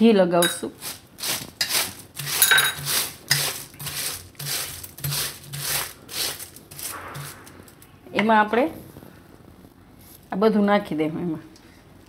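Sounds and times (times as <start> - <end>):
plastic sheet rustling and crackling: 0.8 - 8.0.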